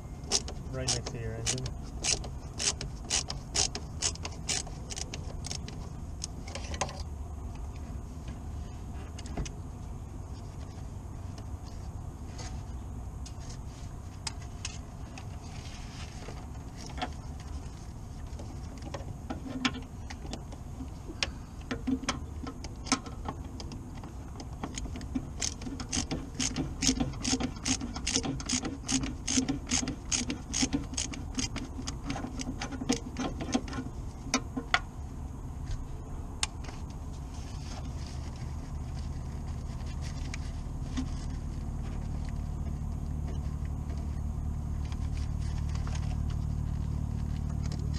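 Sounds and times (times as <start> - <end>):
hand ratchet clicking: 0.3 - 5.8, 24.7 - 33.3.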